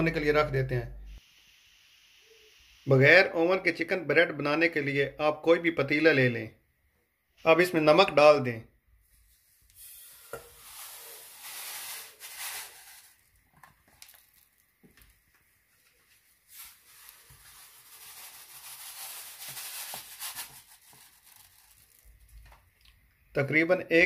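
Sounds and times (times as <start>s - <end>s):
salt pouring into pot: 9.5s - 15.2s, 16.5s - 22.2s.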